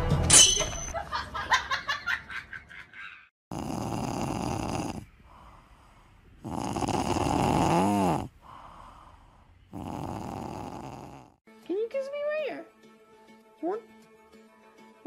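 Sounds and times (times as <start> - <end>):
cat snoring: 3.5 - 11.4.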